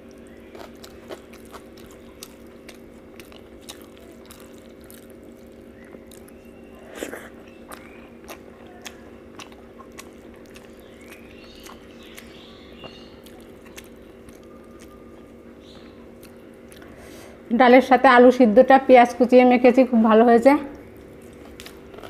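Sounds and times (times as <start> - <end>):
fingers squishing food on plate: 0.0 - 16.9
chewing and mouth clicks: 0.0 - 17.0, 20.7 - 22.0.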